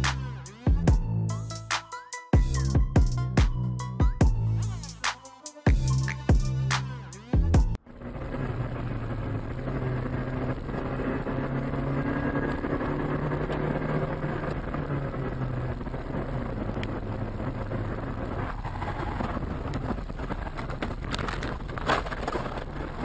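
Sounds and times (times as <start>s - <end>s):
road noise: 4.3s - 23.0s
car engine hum: 7.7s - 23.0s.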